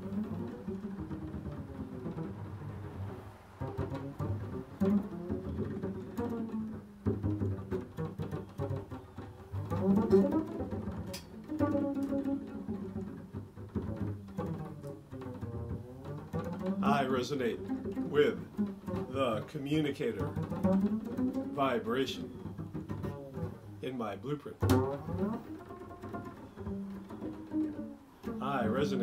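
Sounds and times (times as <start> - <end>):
double bass plucked notes: 0.0 - 29.0.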